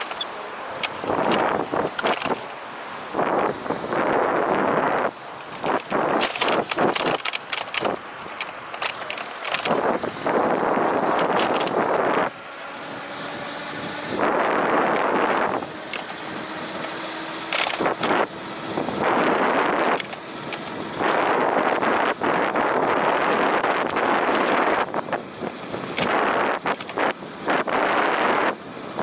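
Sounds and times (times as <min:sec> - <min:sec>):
sharp clicks and rattles: 0:00.0 - 0:02.6, 0:05.4 - 0:11.9, 0:16.8 - 0:21.3, 0:23.6 - 0:27.1
wind buffeting the microphone: 0:00.8 - 0:29.0
thin steady high tone: 0:09.9 - 0:29.0.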